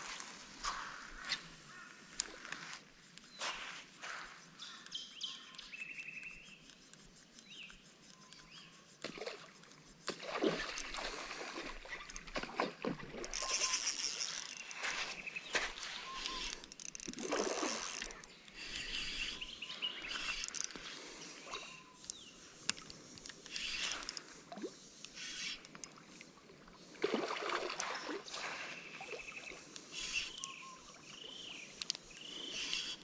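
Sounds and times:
splashing in shallow water: 0:09.0 - 0:18.3, 0:26.9 - 0:29.6
birds calling: 0:10.2 - 0:24.4, 0:28.0 - 0:33.0
fishing rod and reel clattering: 0:10.6 - 0:19.4, 0:20.0 - 0:20.8.

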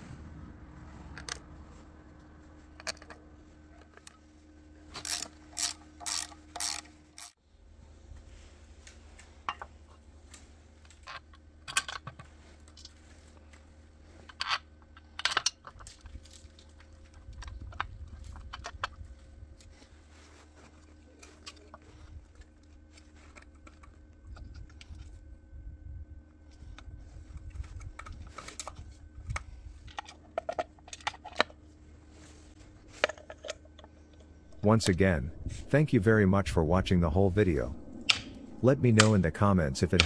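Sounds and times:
ratchet wrench clicking: 0:05.0 - 0:07.3.

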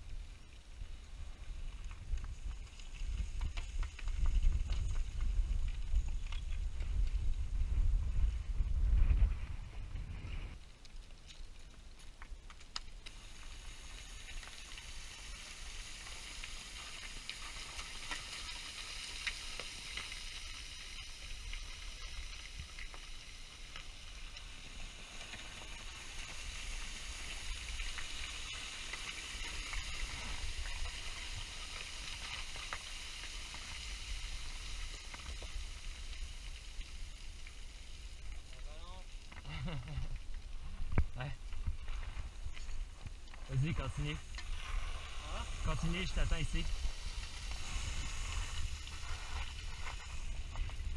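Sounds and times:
low wind rumble on microphone: 0:00.0 - 0:10.6, 0:39.7 - 0:50.9
loose stones shifting underfoot: 0:01.6 - 0:07.5, 0:09.0 - 0:50.9
steady hiss: 0:12.7 - 0:50.9.

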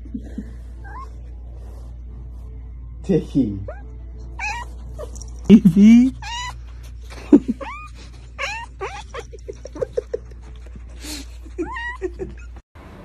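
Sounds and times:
cat whining cries: 0:00.8 - 0:01.2, 0:03.6 - 0:05.2, 0:06.1 - 0:09.4, 0:11.5 - 0:12.6
cat yipping: 0:00.8 - 0:01.2, 0:03.6 - 0:05.5, 0:06.1 - 0:09.8, 0:11.4 - 0:12.6.

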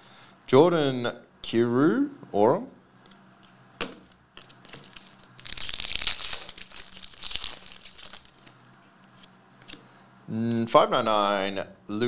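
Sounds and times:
wrapper tearing and crinkling: 0:04.4 - 0:09.3.

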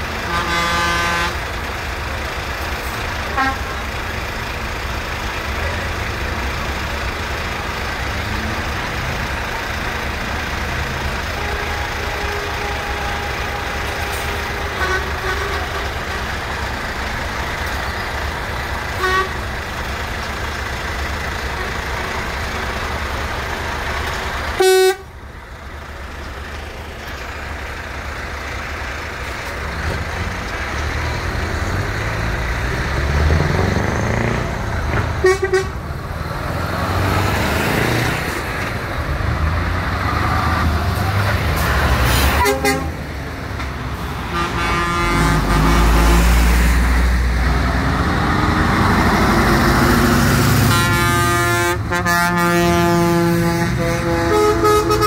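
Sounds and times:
heavy trucks driving past: 0:00.0 - 0:55.0
truck air horns: 0:00.1 - 0:01.6, 0:02.8 - 0:03.9, 0:11.1 - 0:16.6, 0:18.8 - 0:19.5, 0:24.5 - 0:25.2, 0:33.6 - 0:35.9, 0:40.1 - 0:43.1, 0:43.8 - 0:47.0, 0:50.0 - 0:55.0.

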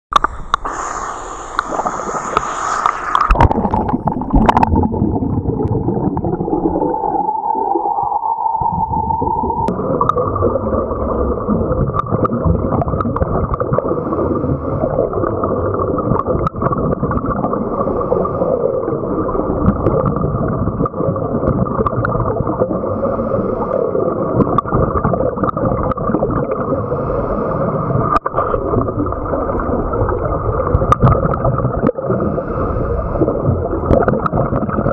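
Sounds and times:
faint clicks: 0:00.1 - 0:03.4
muffled underwater rumble: 0:00.1 - 0:34.9
water splashing: 0:00.2 - 0:18.4.

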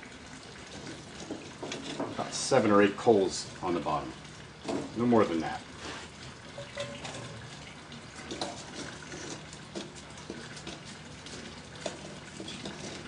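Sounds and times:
charcoal clinking and scraping: 0:00.6 - 0:03.0, 0:05.8 - 0:13.0.

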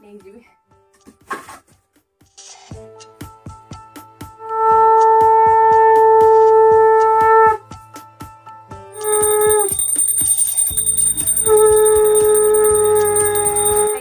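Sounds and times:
hand bell ringing: 0:09.0 - 0:14.0.

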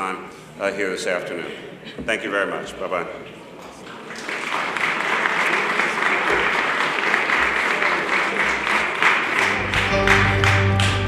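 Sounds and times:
applause: 0:04.0 - 0:11.0
music: 0:09.4 - 0:11.0.

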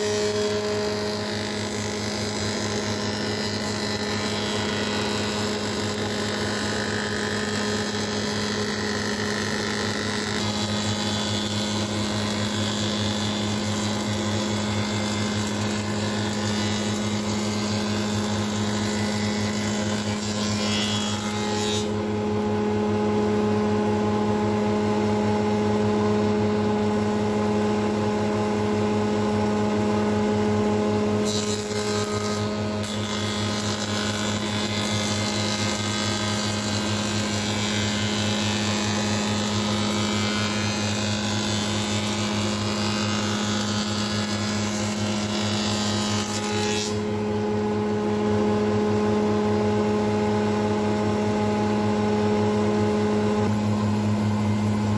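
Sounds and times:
cutter hissing through wood: 0:00.0 - 0:22.0
woodworking machine humming: 0:00.0 - 0:54.9.

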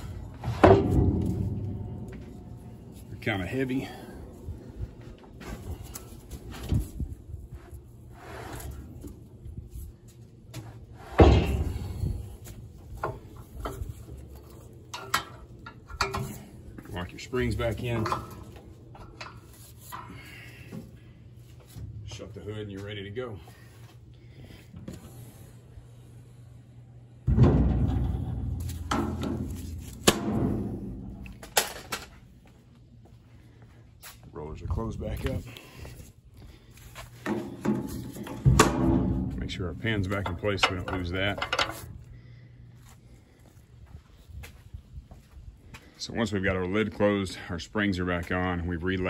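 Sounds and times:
metal clanks: 0:00.0 - 0:04.0, 0:11.1 - 0:16.9, 0:27.2 - 0:32.2, 0:37.2 - 0:41.9
metal hood shutting with thud: 0:11.1 - 0:12.0, 0:27.2 - 0:31.1.

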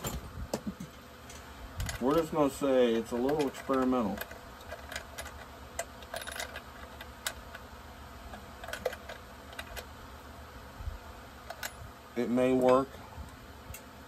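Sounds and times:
metallic clicks of small parts: 0:03.1 - 0:07.6, 0:08.3 - 0:09.9, 0:11.5 - 0:11.8.

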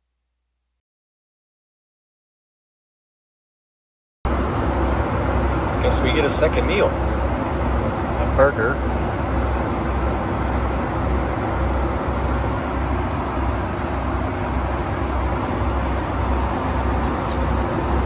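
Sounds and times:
jet engines and airflow rushing: 0:04.3 - 0:18.0.

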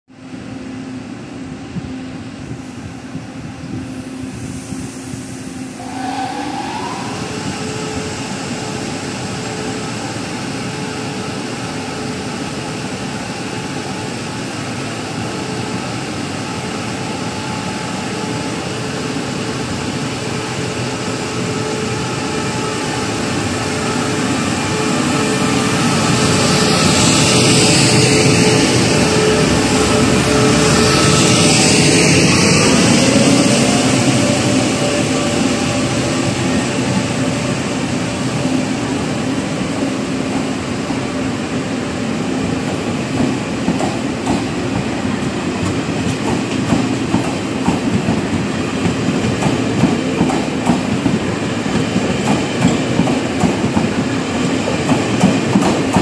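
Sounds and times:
electric train starting off: 0:01.6 - 0:56.0.

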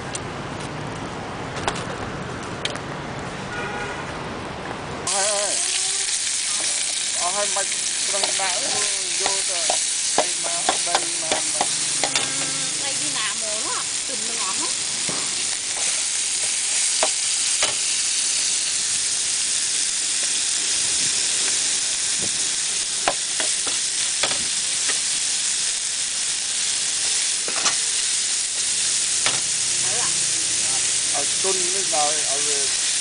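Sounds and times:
food sizzling in hot pan: 0:05.1 - 0:33.0
metal spatula scraping pan: 0:08.2 - 0:13.2.

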